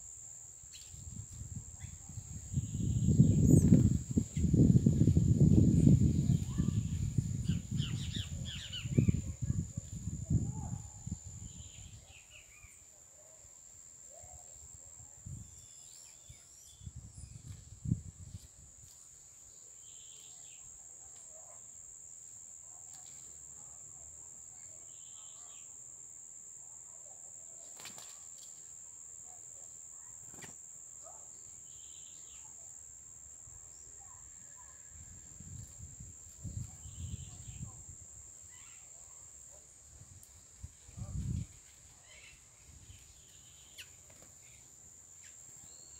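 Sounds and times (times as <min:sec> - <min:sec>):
insect trilling: 0:24.5 - 0:39.2.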